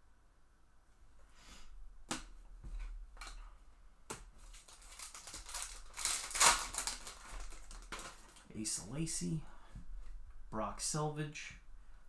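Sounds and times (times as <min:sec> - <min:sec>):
wrapper crinkling and tearing: 0:04.4 - 0:08.5.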